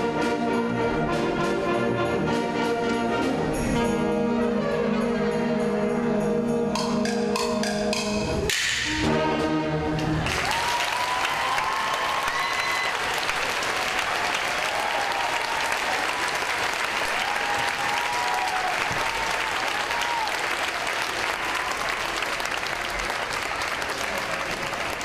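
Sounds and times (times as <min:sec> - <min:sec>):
audience clapping: 0:10.0 - 0:25.0.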